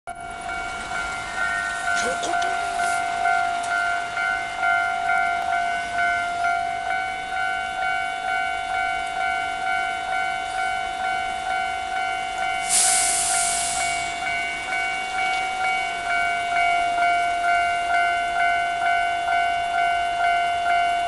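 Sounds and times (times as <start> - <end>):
level crossing warning bell: 0.1 - 21.0
loud rushing hiss: 12.6 - 14.2.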